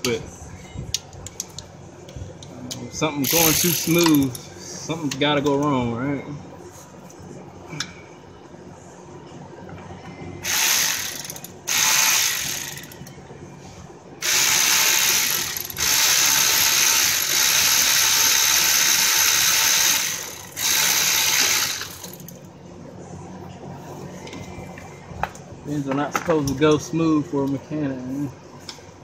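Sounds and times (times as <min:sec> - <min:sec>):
cordless power ratchet running: 0:03.2 - 0:04.4, 0:10.4 - 0:13.1, 0:14.2 - 0:22.4.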